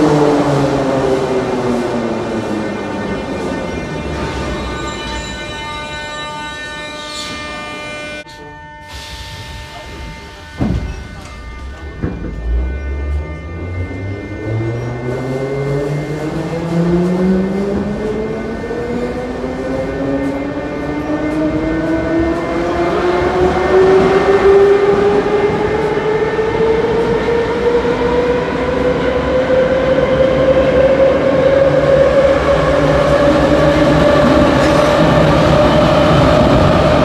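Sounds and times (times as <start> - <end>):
train traction motor whine: 0.0 - 37.0
train wheels rumbling: 8.9 - 37.0.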